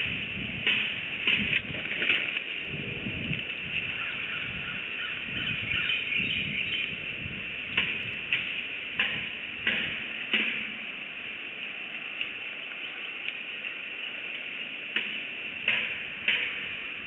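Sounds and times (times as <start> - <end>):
eagle calls: 3.8 - 7.0.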